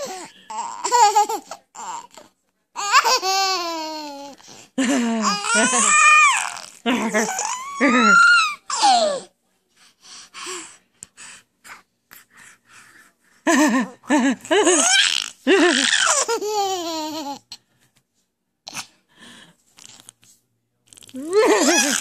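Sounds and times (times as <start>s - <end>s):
baby laughing: 0.0s - 2.1s, 5.0s - 9.2s, 13.6s - 17.5s, 21.2s - 22.0s.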